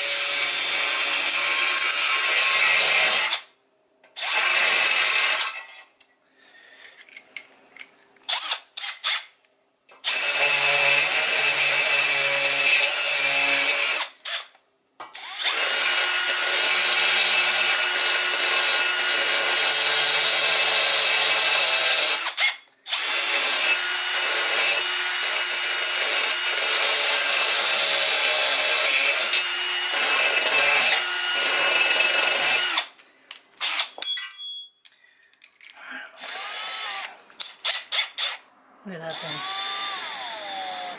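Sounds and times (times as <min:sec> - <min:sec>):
drill cutting into aluminium: 0:00.0 - 0:03.4, 0:04.2 - 0:05.6, 0:08.3 - 0:09.3, 0:10.0 - 0:14.5, 0:15.2 - 0:32.9, 0:33.6 - 0:34.0, 0:36.2 - 0:38.4, 0:39.0 - 0:40.9.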